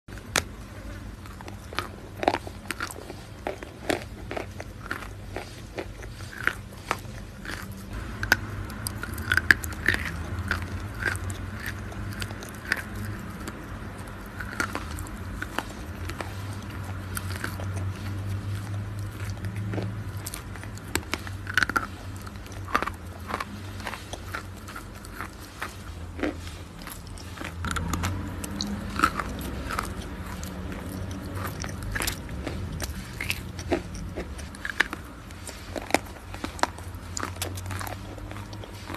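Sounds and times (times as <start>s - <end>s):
chalk cracking and crunching: 0.1s - 38.9s.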